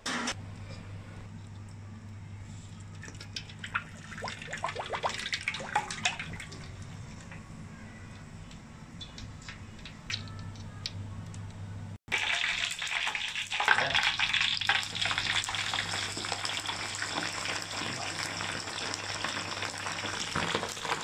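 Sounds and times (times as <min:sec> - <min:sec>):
low steady hum: 0:00.1 - 0:12.4
oil pouring into a wok: 0:12.1 - 0:21.0.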